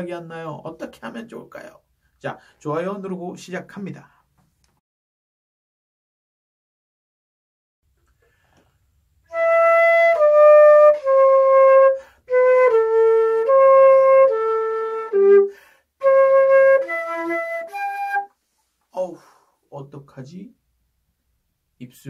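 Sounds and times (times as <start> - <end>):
solo flute notes: 9.2 - 18.4.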